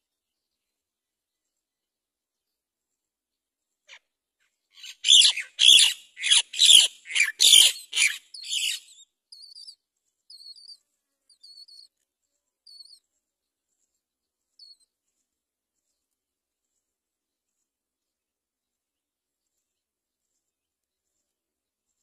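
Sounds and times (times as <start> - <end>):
nestlings harsh begging calls: 4.8 - 9.7.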